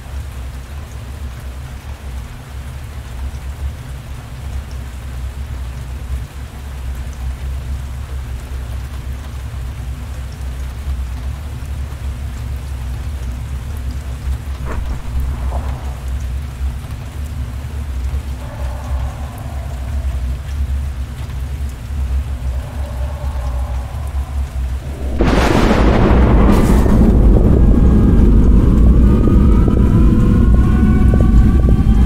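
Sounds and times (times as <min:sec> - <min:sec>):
heavy rain: 0:00.0 - 0:32.0
deep low rumble: 0:14.4 - 0:32.0
sharp crack: 0:14.6 - 0:16.6.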